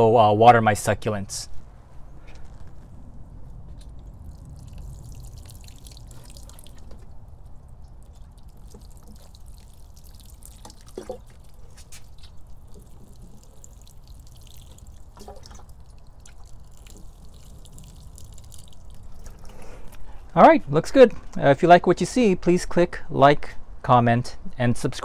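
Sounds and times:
water pouring from watering can: 3.8s - 20.2s.

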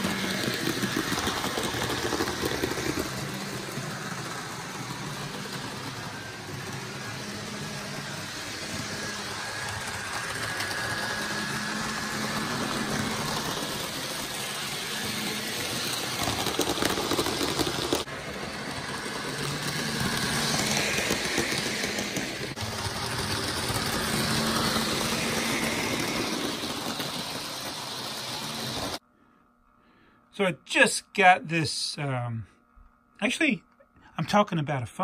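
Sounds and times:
model train motor hum: 0.0s - 29.0s.

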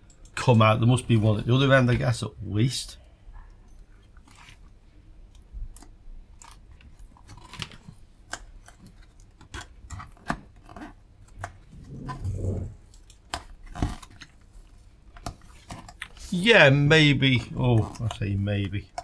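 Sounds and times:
plastic clicks and scratches: 4.0s - 16.2s, 17.3s - 19.0s.

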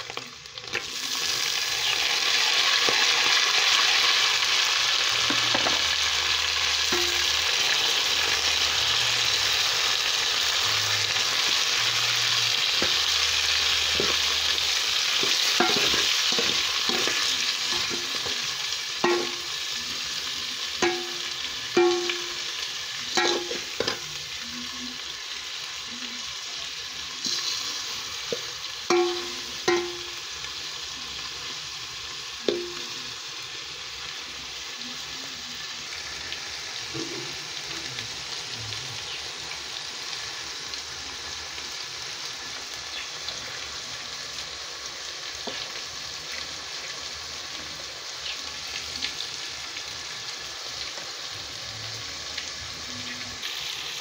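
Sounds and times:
fish sizzling in hot oil: 0.0s - 54.0s
metal spoon clinking against pot: 15.2s - 18.3s, 19.0s - 19.5s, 23.2s - 24.0s.

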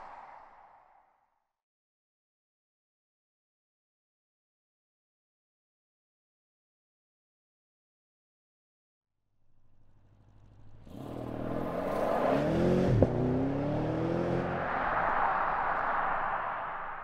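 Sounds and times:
car engine accelerating: 9.6s - 17.0s
tyre and road noise: 10.1s - 17.0s.

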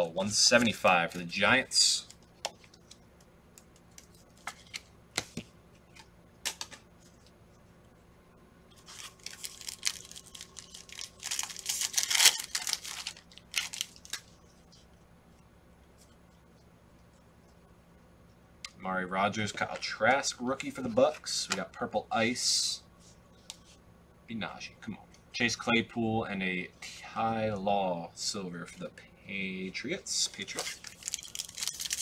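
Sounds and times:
cards tapping: 2.4s - 6.8s
wrapper tearing and crinkling: 8.8s - 14.4s, 30.5s - 32.0s.

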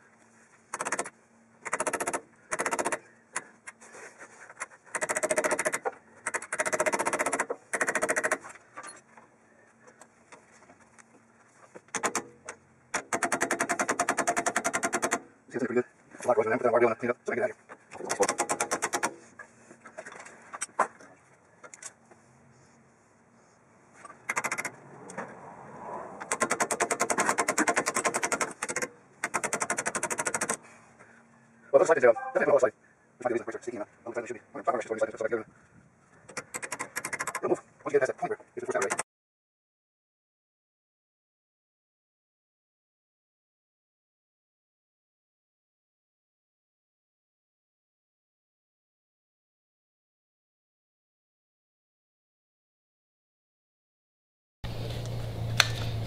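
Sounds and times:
rapid metallic clicking: 24.2s - 24.8s, 26.3s - 30.6s.

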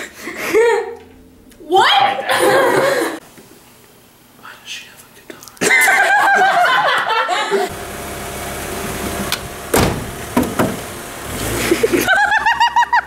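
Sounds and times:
car running with low hum: 1.0s - 1.7s, 7.7s - 12.9s
laughter: 2.3s - 3.2s, 5.6s - 7.7s, 11.6s - 13.0s
short knocks: 9.3s - 10.9s.

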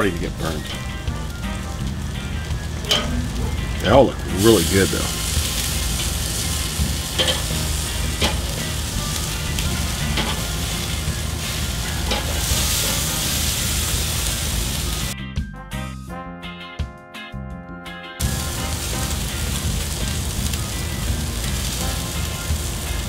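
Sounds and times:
meat sizzling on a grill: 0.0s - 15.2s, 18.2s - 23.0s
metal tongs clicking: 2.9s - 3.2s, 7.2s - 7.5s, 12.1s - 12.4s.

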